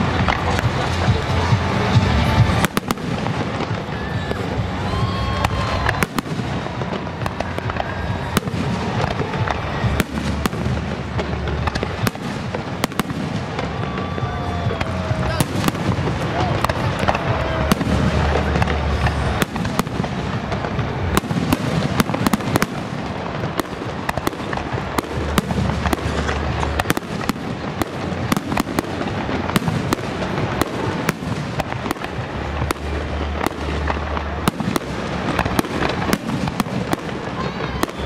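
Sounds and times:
deep fireworks booms: 0:00.0 - 0:38.0
fireworks bangs and crackles: 0:00.0 - 0:38.0.

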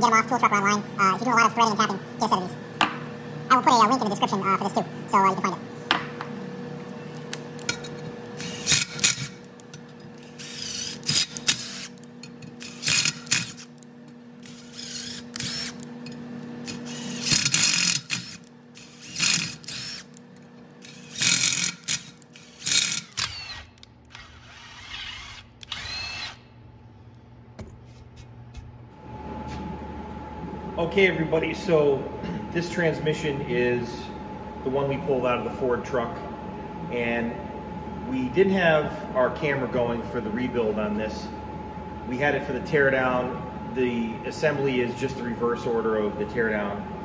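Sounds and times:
steady machine hum: 0:00.0 - 0:47.0
power tool bursts: 0:08.4 - 0:09.5, 0:10.2 - 0:12.0, 0:12.6 - 0:13.8, 0:14.4 - 0:15.9, 0:16.6 - 0:20.2, 0:20.8 - 0:26.4.

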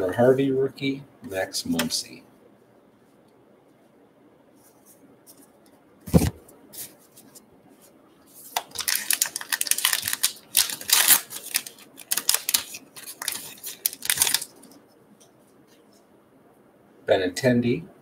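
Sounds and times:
wrapper tearing and crinkling: 0:08.6 - 0:14.8.

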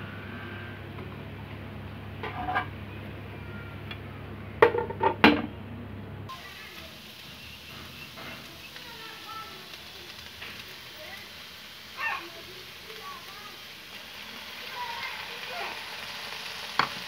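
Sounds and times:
steady low hum: 0:00.0 - 0:06.4
metal spatula scraping a pan: 0:02.2 - 0:02.7.

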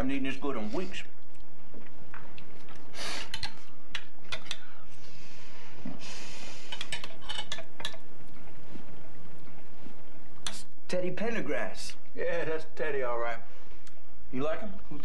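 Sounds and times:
cutlery clinking on plates: 0:06.7 - 0:07.7.

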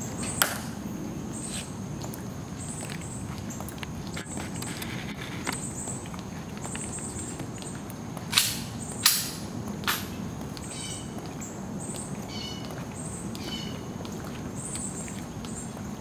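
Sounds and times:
background hiss: 0:00.0 - 0:16.0
high chirping calls: 0:10.6 - 0:13.9.

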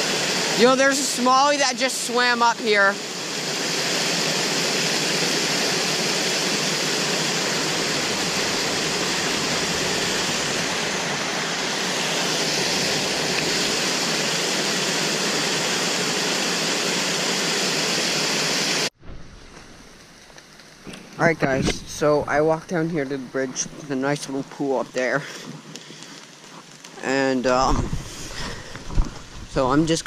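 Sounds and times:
water rushing over spillway: 0:00.0 - 0:18.9.

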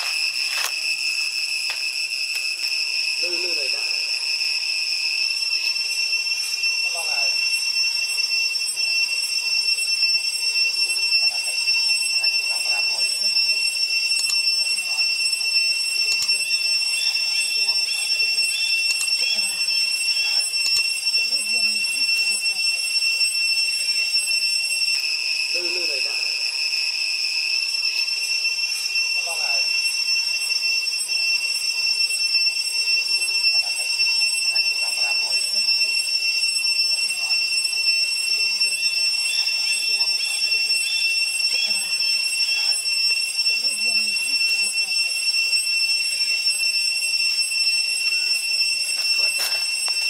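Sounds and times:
cicadas droning: 0:00.0 - 0:50.0
faint voices: 0:21.1 - 0:22.9, 0:33.1 - 0:36.0, 0:41.4 - 0:42.8, 0:43.4 - 0:45.2, 0:49.0 - 0:50.0.

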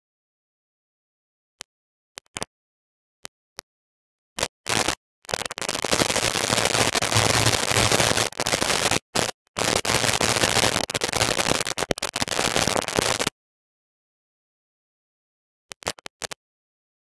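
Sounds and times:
harsh crackling static: 0:04.4 - 0:13.4, 0:15.7 - 0:16.4.

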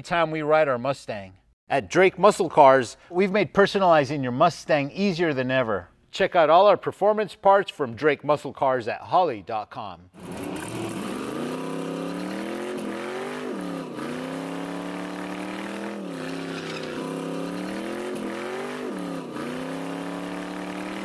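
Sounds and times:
car engine revving high: 0:10.2 - 0:21.0.

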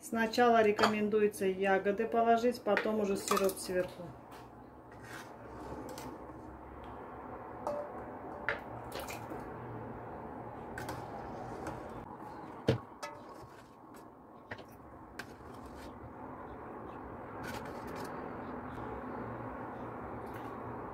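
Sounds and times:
metal ladle clinking: 0:07.7 - 0:09.2.

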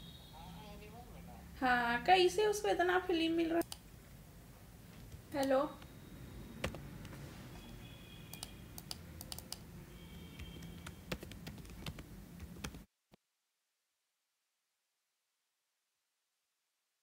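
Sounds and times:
keyboard key clicks: 0:10.4 - 0:12.8.

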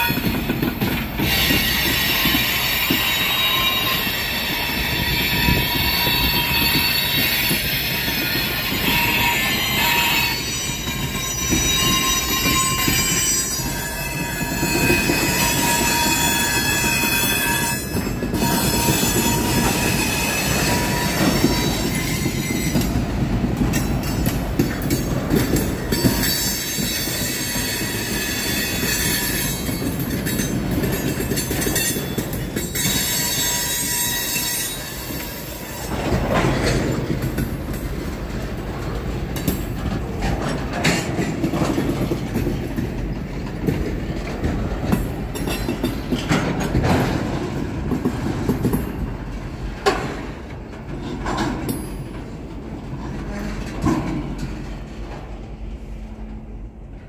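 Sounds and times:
train wheels rumbling: 0:00.0 - 0:57.0
wheels clanking over rail joints: 0:00.0 - 0:57.0
high wheel squeal: 0:01.2 - 0:23.0, 0:31.4 - 0:36.0.

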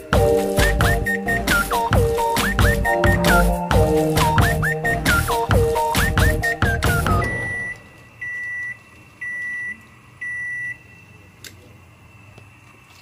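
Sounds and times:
music with whistle-like gliding notes: 0:00.0 - 0:07.1
high electronic beeps: 0:04.2 - 0:10.8.

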